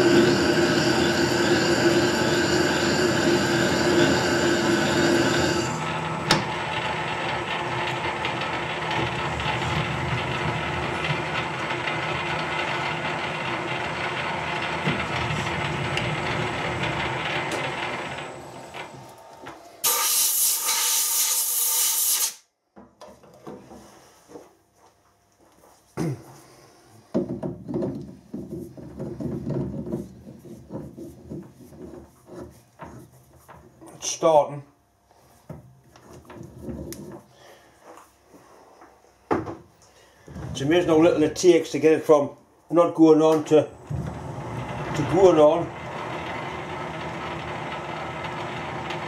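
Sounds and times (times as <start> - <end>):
lathe geared whine: 0.0 - 21.2, 42.8 - 49.0
loud hiss: 19.8 - 22.4.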